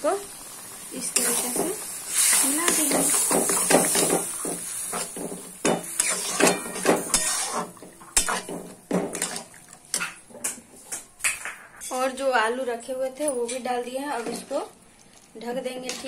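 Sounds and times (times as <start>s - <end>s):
faint sizzle: 0.0s - 16.0s
spatula scraping metal pan: 5.9s - 10.1s.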